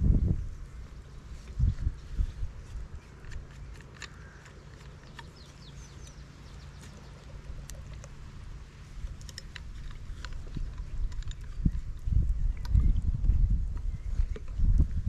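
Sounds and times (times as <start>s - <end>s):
steady low rumble: 0.0s - 15.0s
twigs crackling in a stove: 2.9s - 5.7s
bird chirps: 3.0s - 8.0s.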